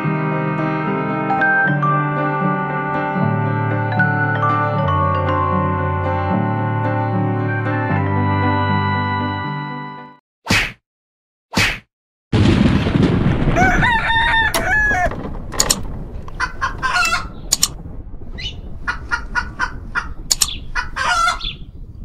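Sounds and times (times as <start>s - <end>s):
loud noisy blast: 12.4s - 22.0s
sharp bird-like calls: 18.4s - 21.7s.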